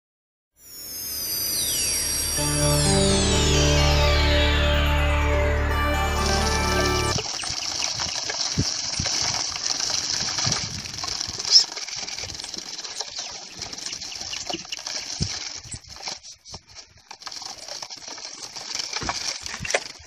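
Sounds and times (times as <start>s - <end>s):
high-pitched hiss: 0.6s - 5.3s
sharp high chirp: 0.6s - 7.2s.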